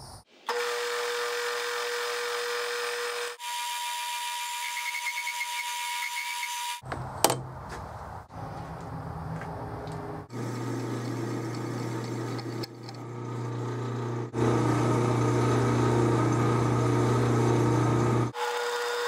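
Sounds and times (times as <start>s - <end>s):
lathe motor hum and gear whine: 10.3s - 19.0s
drill bit boring into steel: 10.4s - 19.0s.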